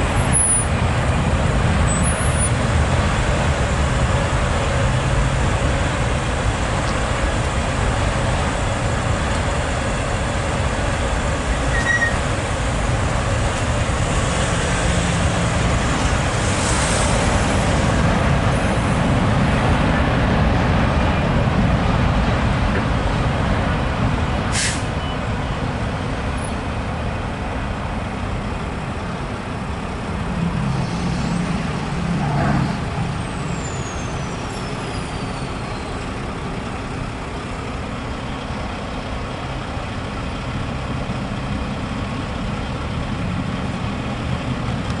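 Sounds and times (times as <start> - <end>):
diesel truck engine pulling away: 0.0 - 45.0
freight train passing: 0.0 - 45.0
road traffic rumble: 0.0 - 45.0
truck air brakes hissing: 15.8 - 18.1, 24.5 - 25.2, 32.6 - 37.9.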